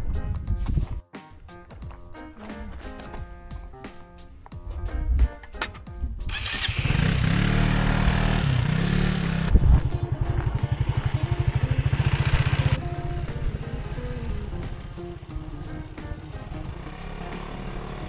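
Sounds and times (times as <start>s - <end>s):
wind and tyre noise: 0.0s - 1.0s, 4.6s - 17.6s
background music: 0.0s - 18.0s
electric dirt bike whine: 6.4s - 18.0s.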